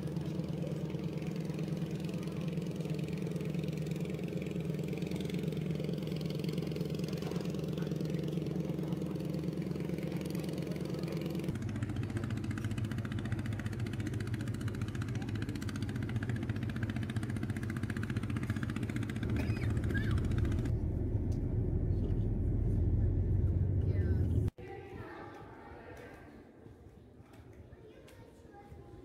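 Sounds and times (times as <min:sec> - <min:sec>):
boat engine running: 0:00.0 - 0:24.5.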